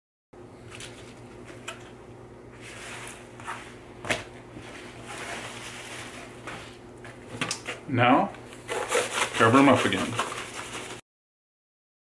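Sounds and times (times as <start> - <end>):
paper towels rustling: 2.6 - 7.2, 8.6 - 11.0.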